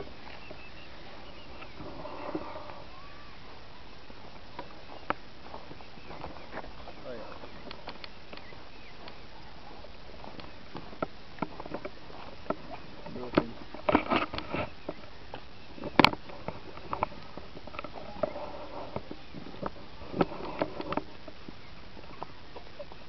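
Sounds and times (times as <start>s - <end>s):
scuffs on dry straw ground: 0.0s - 11.0s.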